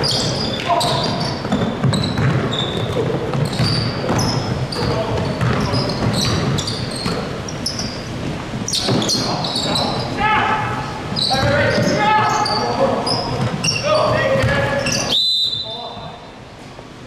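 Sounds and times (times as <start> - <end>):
basketball bouncing on court: 0.0 - 9.6, 11.2 - 15.0
sneaker squeaks: 0.0 - 16.3
voices of players and spectators: 0.0 - 16.5.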